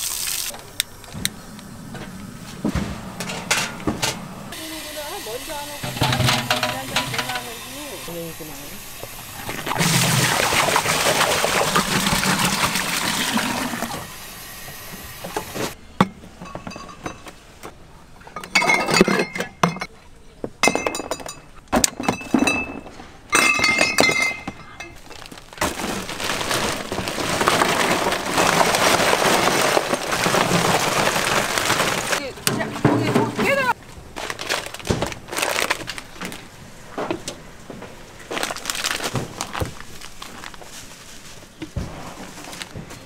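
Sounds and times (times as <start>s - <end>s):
steady rushing hiss: 0.0s - 9.6s
dishes clinking and clattering: 5.8s - 7.5s, 16.0s - 17.3s, 18.3s - 19.9s, 20.6s - 25.0s.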